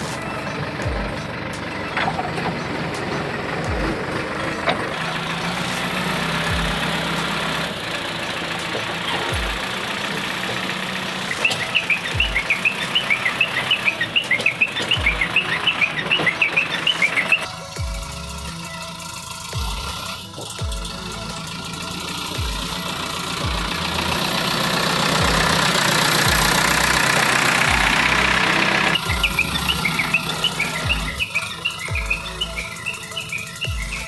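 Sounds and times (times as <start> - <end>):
diesel engine running: 0.0 - 34.0
quick high chirps: 11.2 - 22.0, 26.2 - 34.0.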